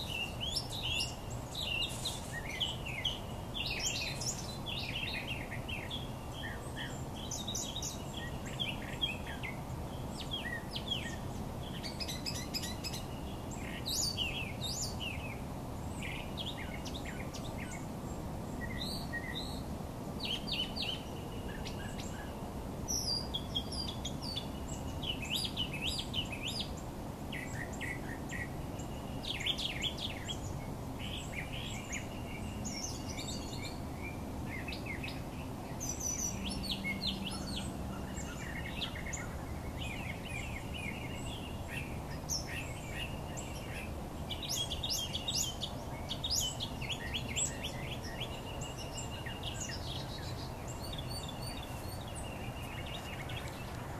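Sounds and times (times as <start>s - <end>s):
small birds chirping: 0.0s - 53.9s.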